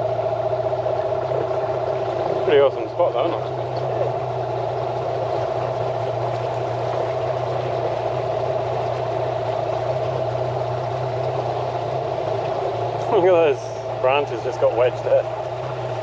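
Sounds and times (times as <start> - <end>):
outboard motor running: 0.0 - 16.0.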